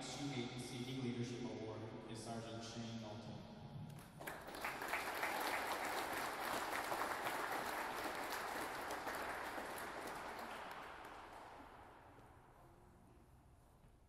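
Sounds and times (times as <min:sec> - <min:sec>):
audience applauding: 0:04.2 - 0:12.1.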